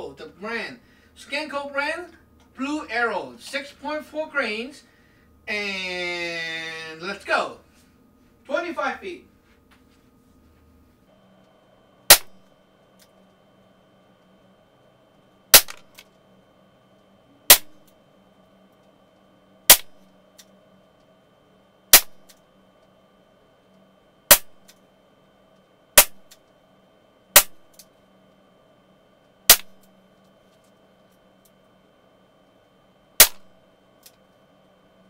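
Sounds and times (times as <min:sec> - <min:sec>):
air pistol shots cracking: 0:12.1 - 0:12.5, 0:15.5 - 0:16.0, 0:17.5 - 0:17.8, 0:19.7 - 0:20.1, 0:21.9 - 0:22.3, 0:24.3 - 0:24.7, 0:26.0 - 0:26.4, 0:27.3 - 0:27.8, 0:29.5 - 0:29.9, 0:33.2 - 0:33.6.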